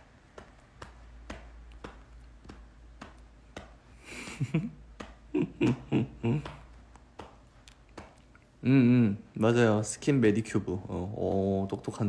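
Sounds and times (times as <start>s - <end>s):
man's short breathy laugh: 4.0s - 6.6s
faint light taps: 4.4s - 8.5s.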